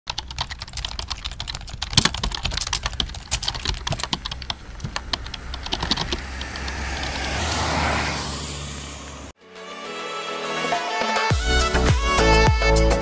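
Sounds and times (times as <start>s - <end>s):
low steady rumble: 0.4s - 7.3s
keyboard key clicks: 0.8s - 6.8s.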